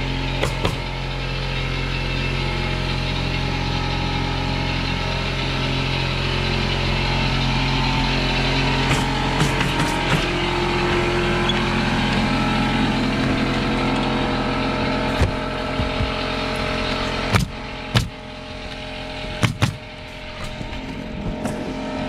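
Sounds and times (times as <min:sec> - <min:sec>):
air compressor humming: 0:00.0 - 0:22.0
pneumatic nailer shots: 0:00.4 - 0:01.0, 0:08.8 - 0:10.4, 0:15.1 - 0:20.8.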